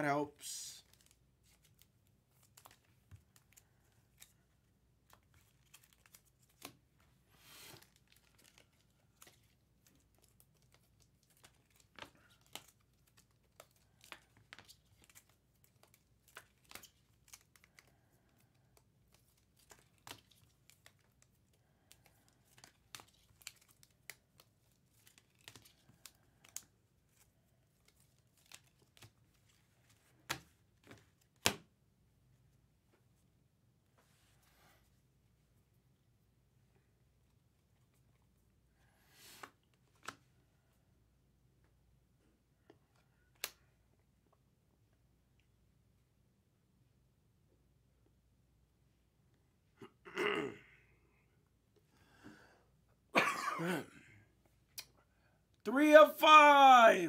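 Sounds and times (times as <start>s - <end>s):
cards clicking while handled: 7.7s - 29.1s.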